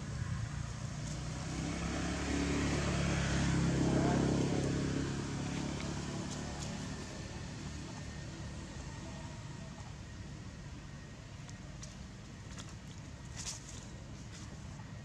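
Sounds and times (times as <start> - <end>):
vehicle engine passing by: 0.0 - 9.7.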